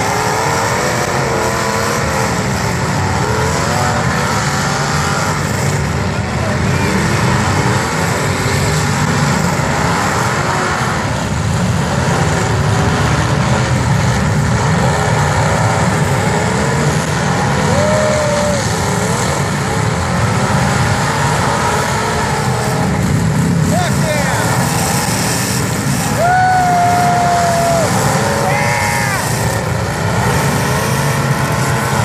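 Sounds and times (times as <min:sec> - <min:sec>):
car engines revving: 0:00.0 - 0:32.0.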